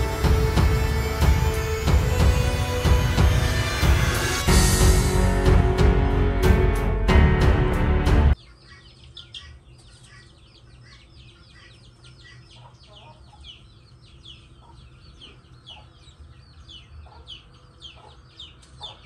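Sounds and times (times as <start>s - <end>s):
loud music: 0.0s - 8.4s
chicks peeping: 8.3s - 19.0s.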